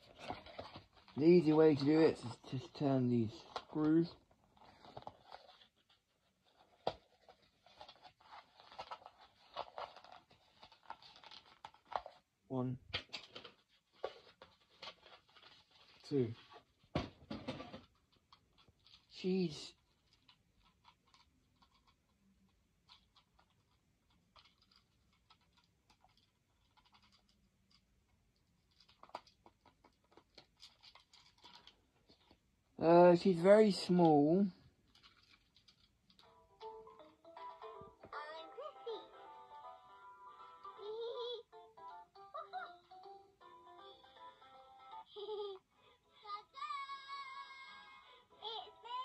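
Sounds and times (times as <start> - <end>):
plastic packaging clicks and scratches: 0.0 - 12.3, 12.9 - 32.4, 34.6 - 37.1
plastic packaging scraping: 3.4 - 12.2.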